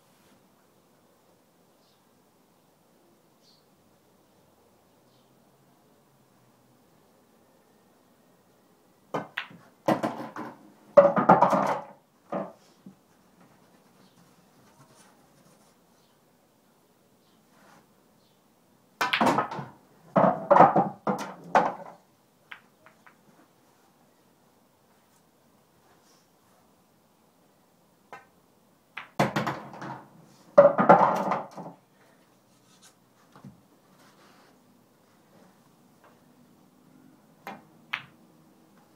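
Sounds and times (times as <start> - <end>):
pool balls clicking and knocking: 9.1 - 13.8, 19.0 - 23.3, 28.1 - 31.8, 37.4 - 38.9.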